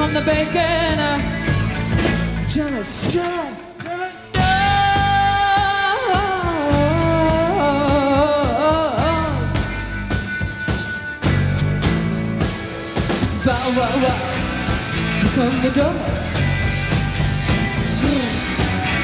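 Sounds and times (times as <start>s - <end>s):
woman singing: 0.0s - 1.3s, 4.0s - 9.7s, 15.2s - 16.4s
live rock band playing: 0.0s - 19.0s.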